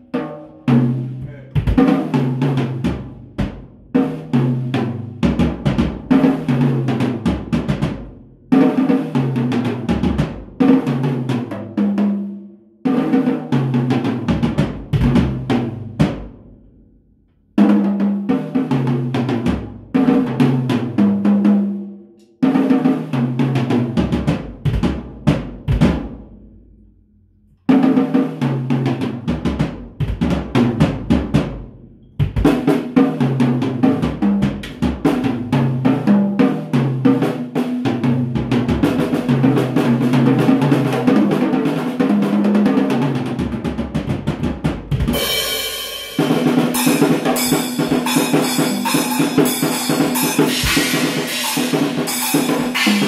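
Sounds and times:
drum kit played with sticks: 0.0s - 16.6s, 17.6s - 26.5s, 27.7s - 53.0s
cymbal wash: 46.8s - 53.0s.

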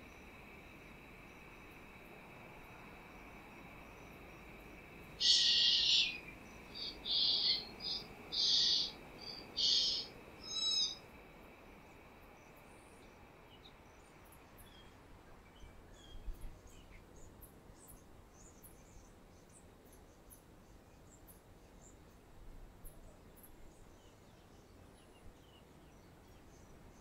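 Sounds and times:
faint chirps: 5.1s - 11.1s
bird nestling harsh begging calls: 5.2s - 6.2s, 7.0s - 8.9s.

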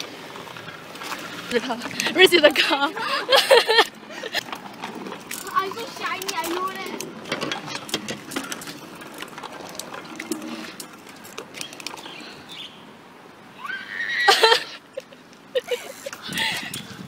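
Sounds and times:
child crying out: 13.6s - 14.7s.

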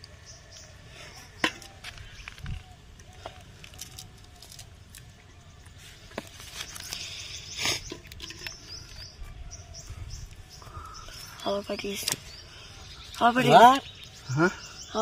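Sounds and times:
net rustling and crackling: 2.0s - 5.2s.

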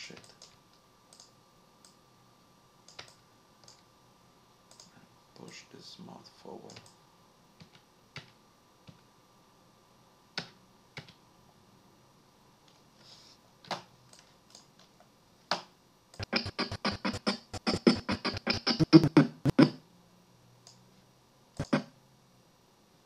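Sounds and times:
short audio blips: 16.2s - 19.7s.

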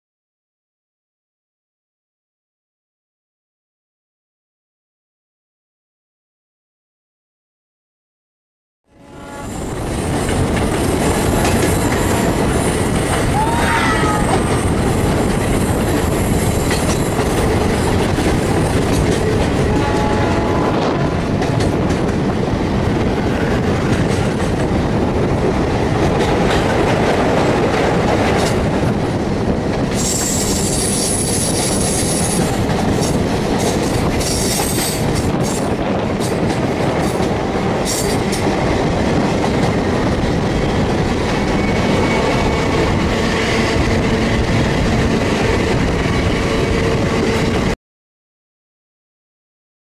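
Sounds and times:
high-pitched squeal: 8.9s - 16.7s
train wheels rumbling on rails: 9.0s - 47.8s
clickety-clack over rail joints: 9.6s - 13.5s, 14.3s - 47.8s.

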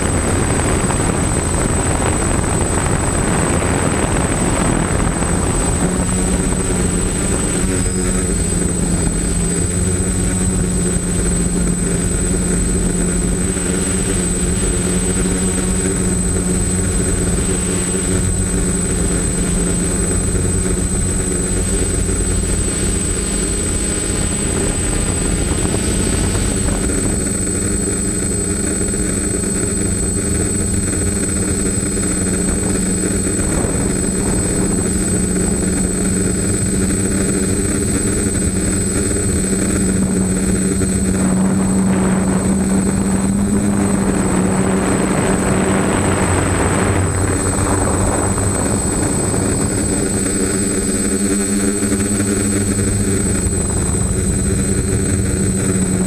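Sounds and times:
drone motors buzzing: 0.0s - 56.0s
wind rushing: 31.1s - 56.0s.

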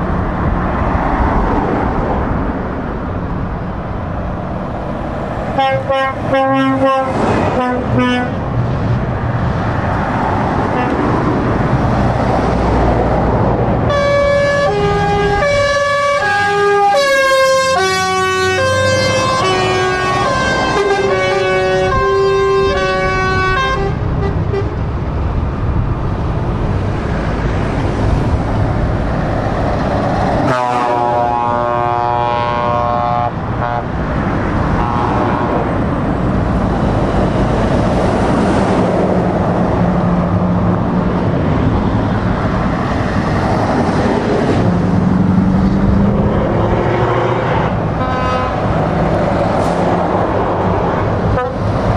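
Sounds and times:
heavy trucks driving past: 0.0s - 51.9s
truck air horns chord: 5.6s - 8.4s, 13.9s - 24.8s, 30.4s - 33.9s, 34.8s - 35.4s, 46.9s - 48.7s, 51.3s - 51.7s.

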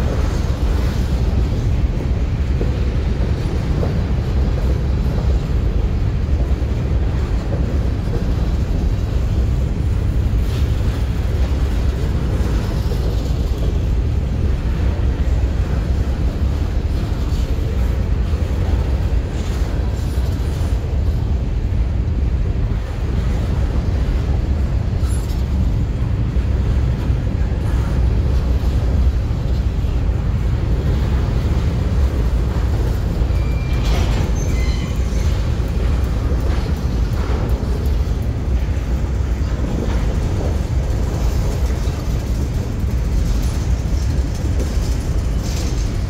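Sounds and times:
freight train rolling past: 0.0s - 46.0s
wind buffeting microphone: 0.0s - 46.0s
high squeal: 33.3s - 35.3s.

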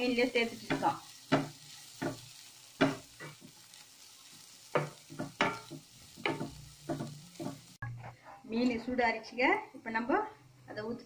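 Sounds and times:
spatula scraping vegetables in pan: 0.0s - 8.7s
oil sizzling: 0.0s - 11.0s.

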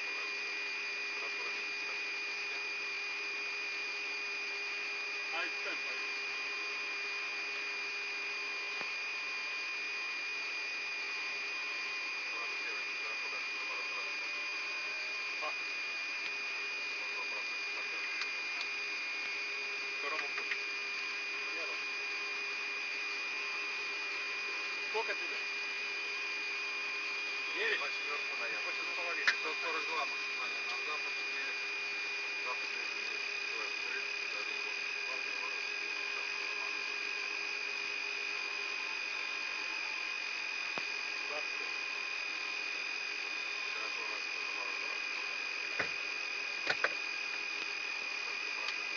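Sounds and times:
muffled crew voices: 0.0s - 3.1s, 5.2s - 6.4s, 11.0s - 26.4s, 27.0s - 37.9s, 38.9s - 42.0s, 43.4s - 47.4s
constant high whine: 0.0s - 48.9s
low electrical hum: 0.0s - 48.9s.

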